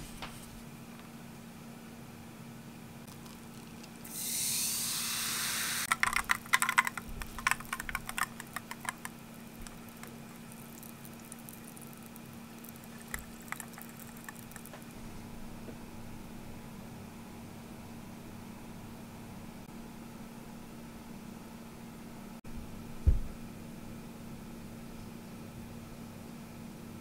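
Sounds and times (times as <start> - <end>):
ice crackling and fizzing bubbles: 3.1 - 4.1, 5.8 - 15.0
water pouring into glass: 5.9 - 14.7.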